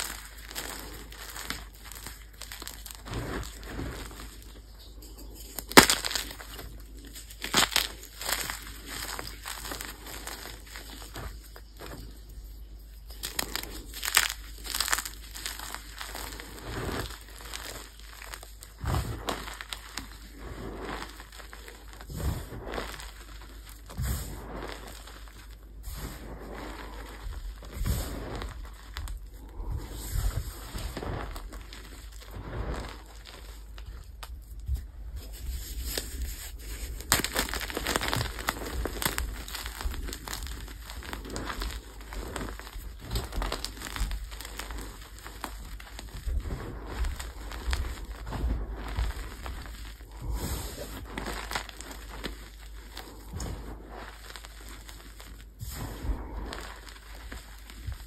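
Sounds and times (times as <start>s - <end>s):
chalk crunching and crackling: 0.0s - 58.0s.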